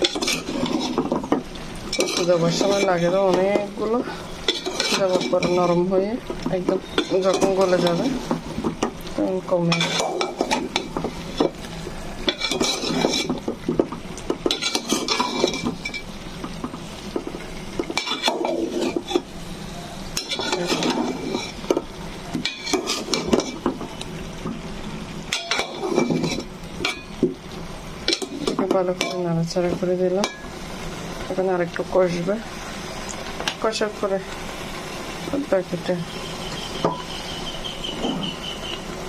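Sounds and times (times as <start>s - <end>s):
metal spoon scraping pot: 0.0s - 3.7s, 4.4s - 5.9s, 6.6s - 8.8s, 9.5s - 16.1s, 17.8s - 19.3s, 20.1s - 21.8s, 22.4s - 23.7s, 25.3s - 27.2s.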